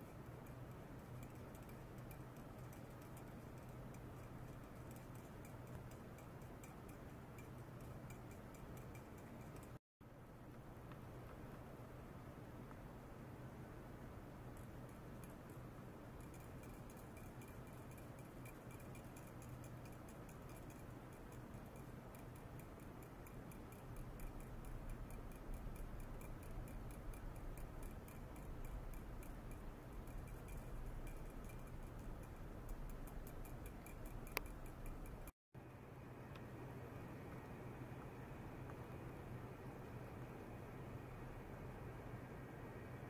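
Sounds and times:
rapid faint ticking: 0:00.0 - 0:09.8, 0:14.0 - 0:35.3.

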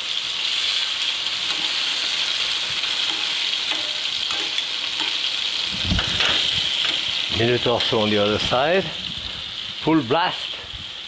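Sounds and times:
meat sizzling in oil: 0:00.0 - 0:11.0
metal tongs clicking: 0:03.0 - 0:05.2.

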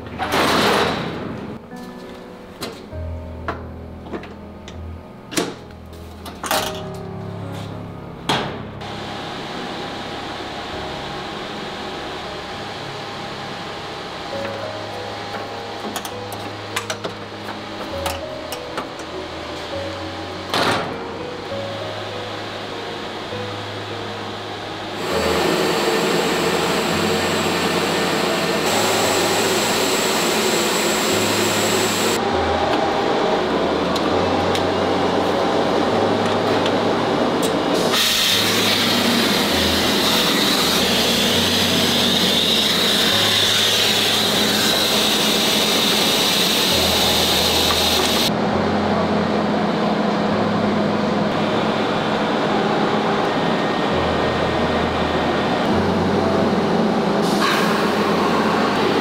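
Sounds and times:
suction hose vacuuming powder: 0:24.9 - 0:32.2, 0:37.8 - 0:48.3.

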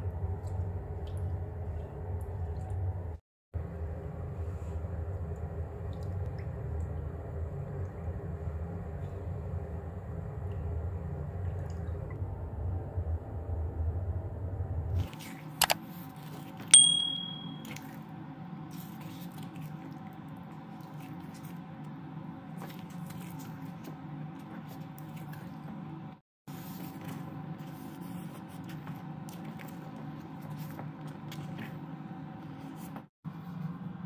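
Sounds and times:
bell-like ding: 0:16.8 - 0:17.6.

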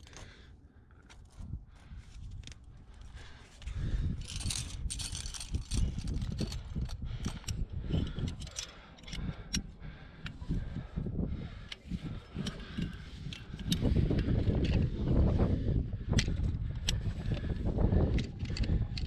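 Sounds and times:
climbing gear clinking and jangling: 0:02.4 - 0:09.6
sharp metal clicks: 0:04.2 - 0:10.4.

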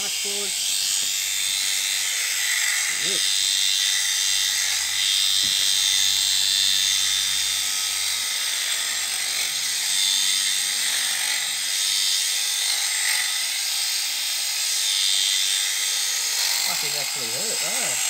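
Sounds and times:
electric shears buzzing: 0:00.0 - 0:18.0.

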